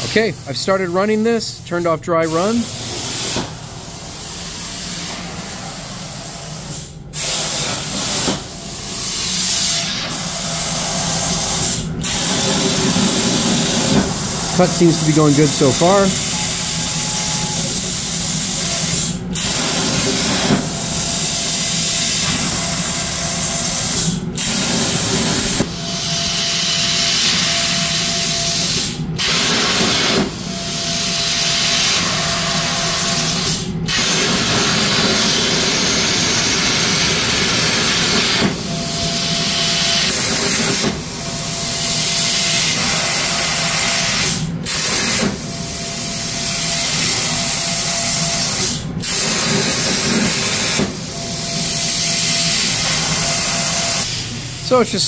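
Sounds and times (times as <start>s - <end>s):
plasma cutter hissing: 4.0s - 30.1s, 51.5s - 54.9s.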